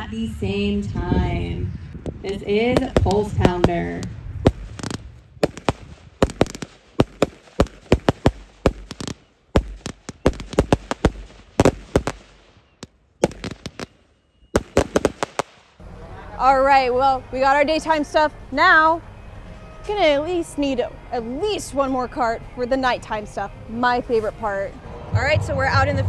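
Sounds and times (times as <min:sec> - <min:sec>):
firework bangs: 0:02.2 - 0:13.9, 0:14.6 - 0:15.8.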